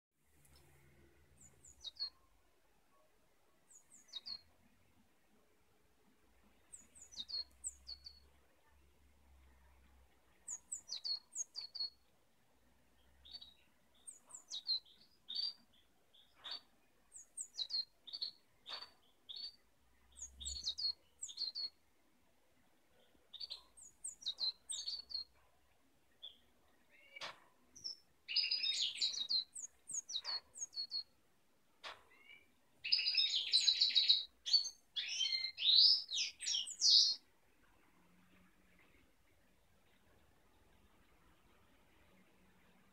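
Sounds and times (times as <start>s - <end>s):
bird calling and chattering: 32.1s - 37.2s.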